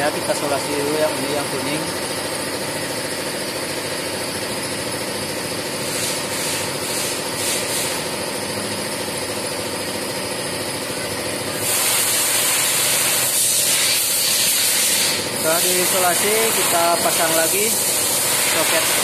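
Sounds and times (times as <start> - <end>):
loud hiss: 11.5 - 19.0.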